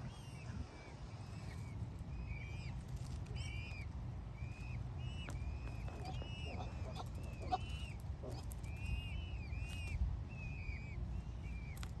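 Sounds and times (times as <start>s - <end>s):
chicks peeping: 4.6s - 8.8s.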